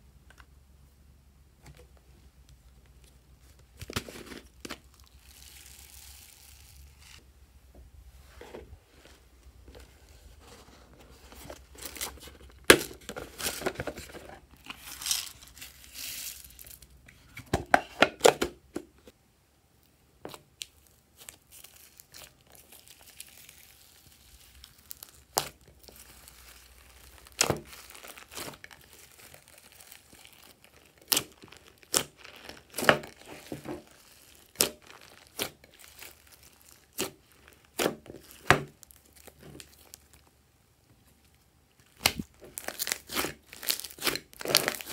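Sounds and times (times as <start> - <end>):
slime crackling and tearing: 4.0 - 7.2, 20.3 - 40.3, 41.8 - 44.9.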